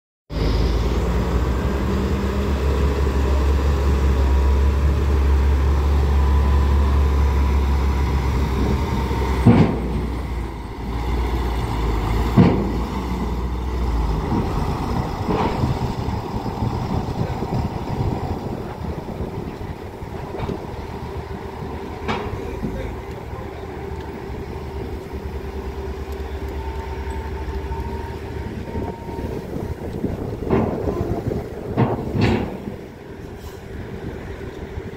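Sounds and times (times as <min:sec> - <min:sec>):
diesel truck engine rumbling: 0:00.3 - 0:34.9
wheels clanking on steel ramp: 0:07.9 - 0:34.9.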